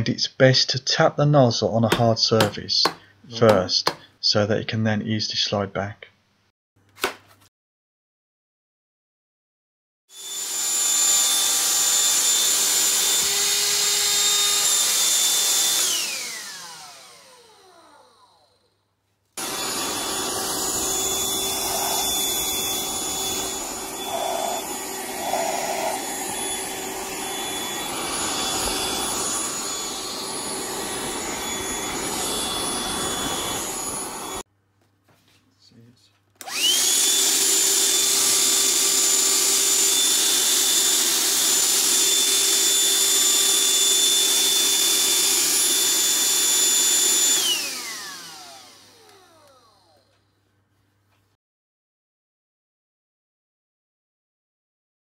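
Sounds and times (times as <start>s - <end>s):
handheld vacuum whine: 10.1s - 18.8s, 19.4s - 34.5s, 36.4s - 50.3s.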